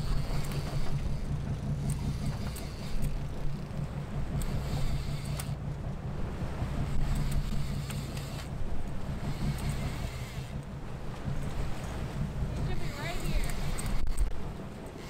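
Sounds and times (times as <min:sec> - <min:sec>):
boat engine running: 0:00.0 - 0:15.0
wind buffeting microphone: 0:00.0 - 0:15.0.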